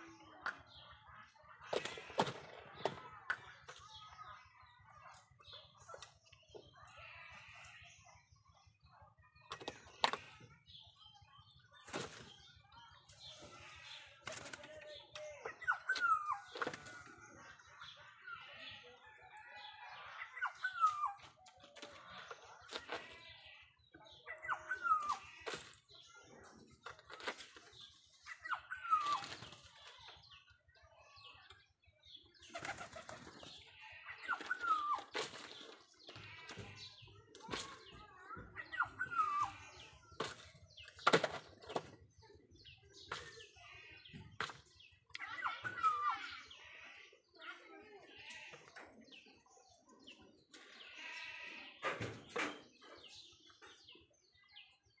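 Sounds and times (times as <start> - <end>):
bleat-like animal call: 48.0 - 48.7, 50.8 - 51.8
small bird chirping: 50.9 - 51.5.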